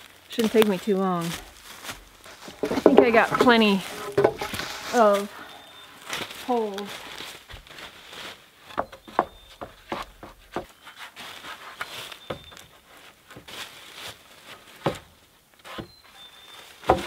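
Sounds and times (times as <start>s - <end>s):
dry leaves rustling underfoot: 0.0s - 8.9s, 10.7s - 15.4s
wooden poles knocking and scraping: 1.8s - 5.3s, 8.6s - 13.6s, 14.4s - 16.2s, 16.8s - 17.0s.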